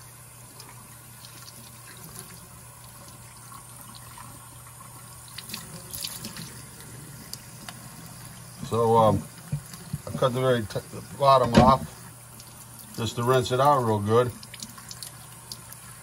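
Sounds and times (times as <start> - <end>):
faucet running into sink: 0.0 - 16.0
low steady hum: 0.0 - 16.0
small water splashes: 4.9 - 6.6, 11.4 - 16.0.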